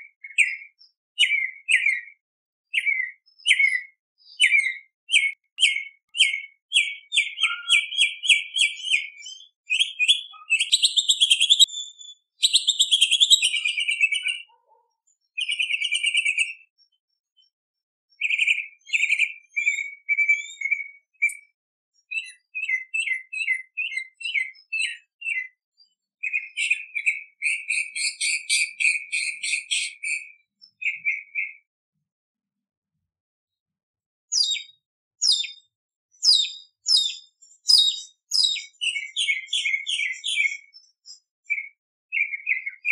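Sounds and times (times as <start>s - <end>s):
mockingbird singing: 0.2s - 14.6s, 18.1s - 25.5s, 26.2s - 31.6s, 34.3s - 40.9s, 41.5s - 42.9s.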